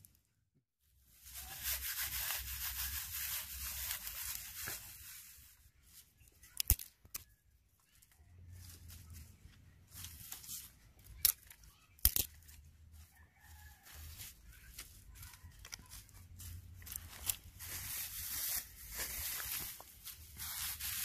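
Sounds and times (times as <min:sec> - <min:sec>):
dry grass and twigs rustling: 0:00.9 - 0:21.0.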